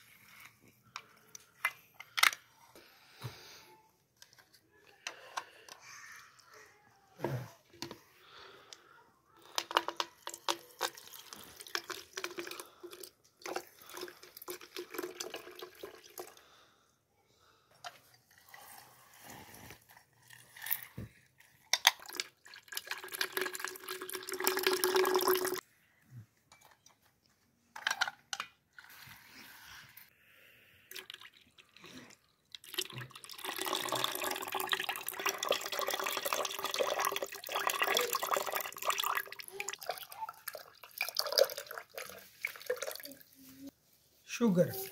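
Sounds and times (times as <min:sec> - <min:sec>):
juice splashing into a jug: 0:10.2 - 0:16.4, 0:21.9 - 0:25.6, 0:30.9 - 0:43.2.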